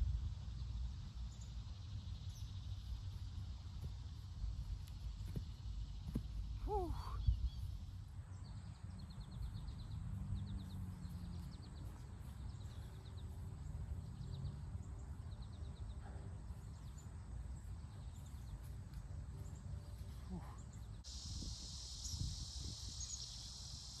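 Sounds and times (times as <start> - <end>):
wind rumble on microphone: 0.0 - 4.6, 20.3 - 23.3
birds chirping: 1.2 - 23.9.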